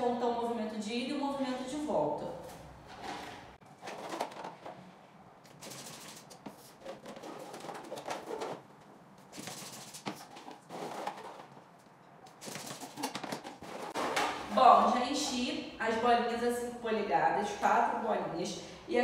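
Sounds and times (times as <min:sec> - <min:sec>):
balloons being handled: 0:05.5 - 0:14.5
hand pump air rushes: 0:09.3 - 0:11.3.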